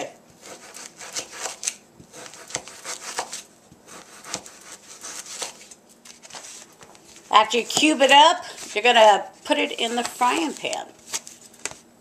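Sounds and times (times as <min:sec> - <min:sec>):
knife cutting meat: 0:00.4 - 0:05.8.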